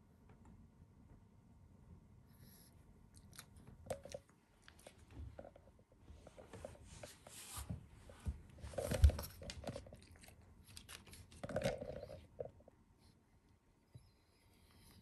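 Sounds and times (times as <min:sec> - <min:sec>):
dog chewing and crunching treat: 0:08.7 - 0:12.5.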